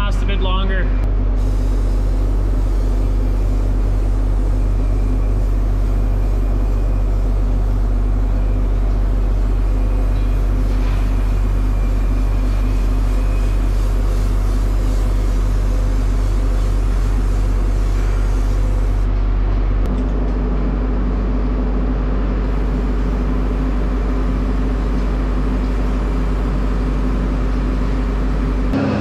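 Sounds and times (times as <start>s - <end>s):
mechanical engine drone: 0.0s - 16.5s, 28.3s - 29.0s.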